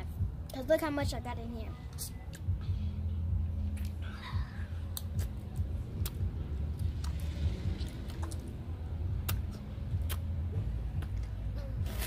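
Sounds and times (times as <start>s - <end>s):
low rumble: 0.0s - 12.0s
gum chewing smacks: 4.9s - 8.5s, 9.2s - 12.0s.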